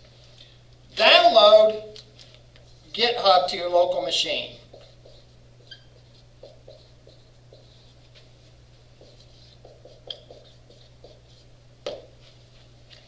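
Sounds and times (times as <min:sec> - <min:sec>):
marker squeaking on whiteboard: 0:04.6 - 0:08.2, 0:09.0 - 0:11.5.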